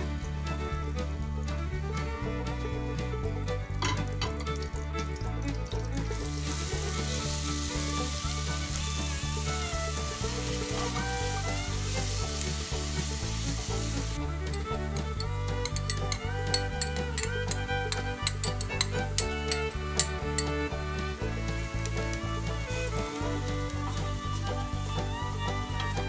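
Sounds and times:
onion sizzling in hot fat: 5.8 - 26.0.

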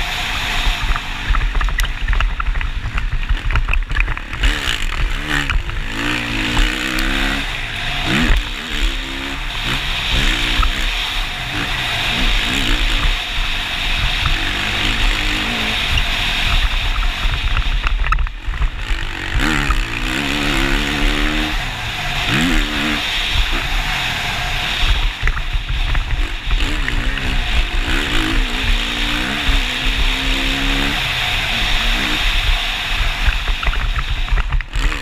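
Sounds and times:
motocross engine revving: 0.0 - 35.0
wind noise: 0.0 - 35.0.

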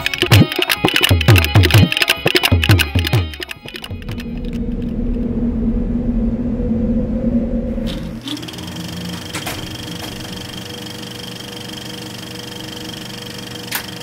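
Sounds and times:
low drone: 3.6 - 11.0
film projector clatter and whine: 8.2 - 14.0.

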